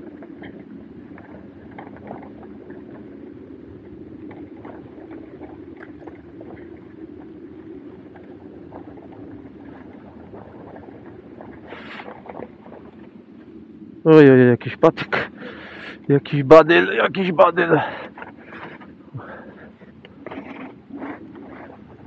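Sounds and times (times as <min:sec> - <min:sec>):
small rattles and clicks: 0:00.0 - 0:03.1
riding rumble: 0:00.0 - 0:22.0
wind on microphone: 0:00.0 - 0:22.0.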